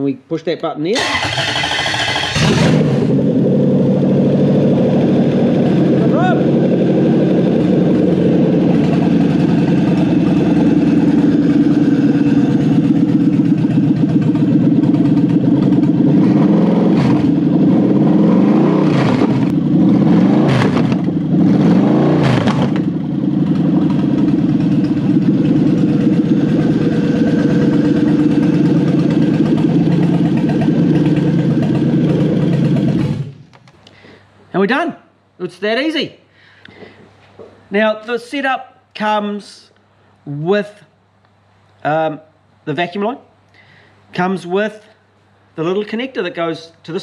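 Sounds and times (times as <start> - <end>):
engine idling and revving: 1.0 - 33.5.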